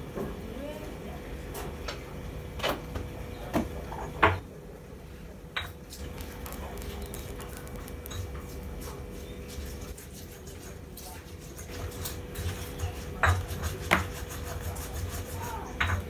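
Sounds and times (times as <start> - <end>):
steady hum: 4.4 - 10.7.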